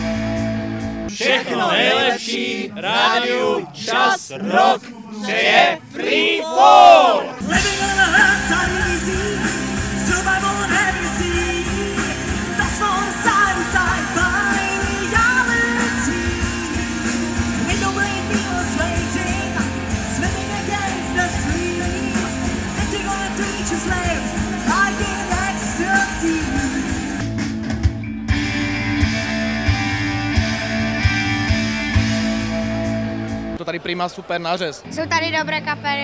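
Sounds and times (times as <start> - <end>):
electric guitars: 0.0 - 1.1, 7.4 - 33.6
drums: 0.0 - 2.0, 7.4 - 34.0
person singing: 7.4 - 17.0.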